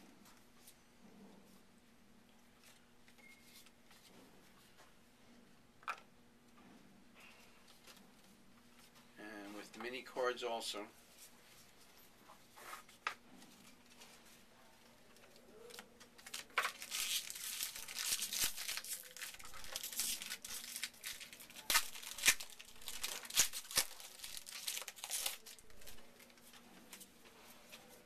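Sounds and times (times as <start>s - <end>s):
wrapper tearing and crinkling: 15.7s - 26.4s.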